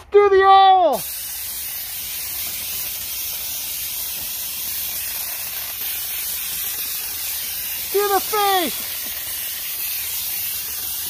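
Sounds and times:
pressure sprayer hissing: 0.8 - 11.0.

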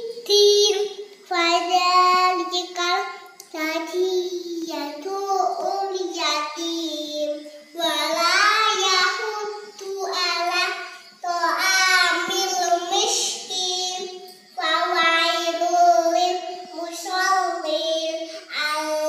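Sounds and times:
girl chanting prayer verses: 0.0 - 19.0.

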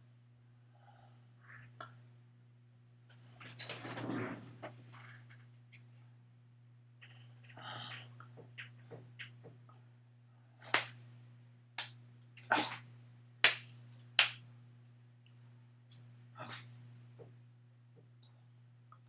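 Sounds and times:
hands clapping and slapping: 10.7 - 11.0, 11.8 - 12.0, 13.4 - 14.4.

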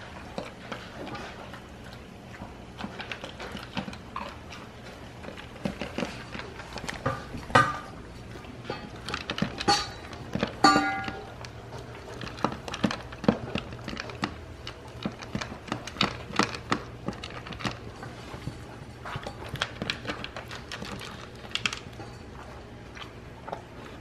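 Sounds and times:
puppy crunching kibble: 0.0 - 24.0.

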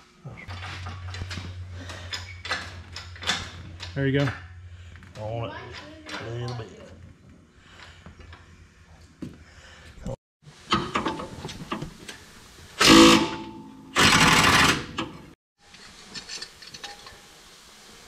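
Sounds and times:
tools clicking and clanking: 0.5 - 4.6
power wrench running: 12.8 - 15.1.

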